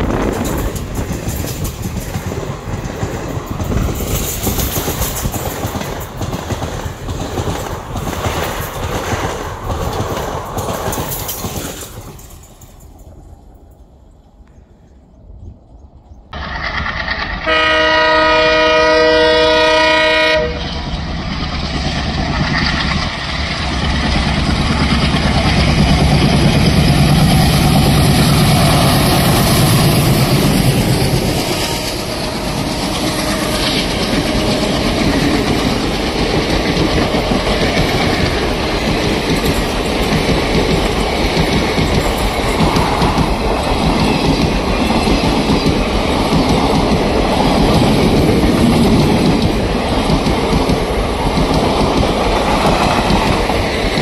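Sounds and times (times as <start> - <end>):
train wheels clickety-clack: 0.0 - 13.2, 16.4 - 54.0
train horn: 16.4 - 20.8, 31.2 - 35.0
locomotive engines chugging: 20.9 - 54.0.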